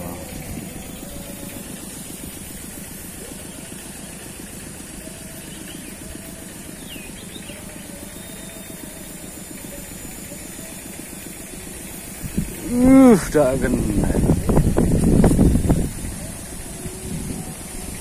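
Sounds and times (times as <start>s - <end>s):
steady low rumble: 0.0s - 5.0s, 11.6s - 18.0s
faint high chirps: 0.0s - 13.2s.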